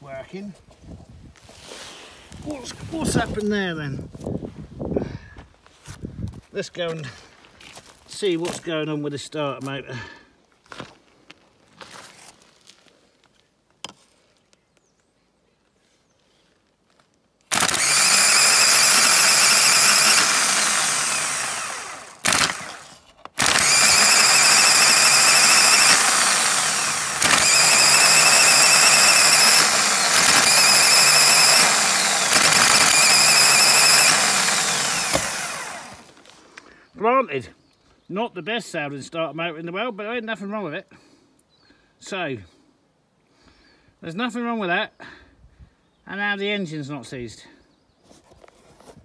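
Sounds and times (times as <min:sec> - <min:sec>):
starter motor whining: 0:17.5 - 0:36.2.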